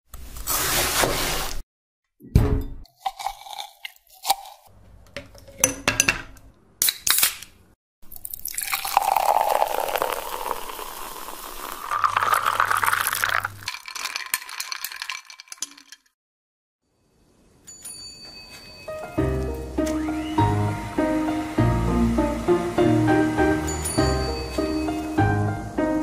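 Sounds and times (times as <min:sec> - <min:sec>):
soda pouring: 0:08.0 - 0:16.1
soda fizzing: 0:08.1 - 0:16.0, 0:19.9 - 0:25.4.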